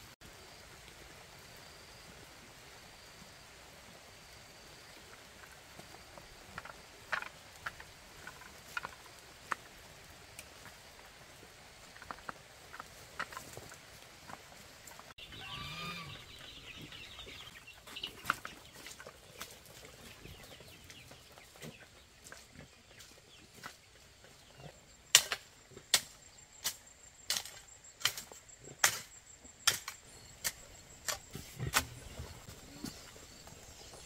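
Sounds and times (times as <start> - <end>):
chickens clucking: 15.2 - 23.8.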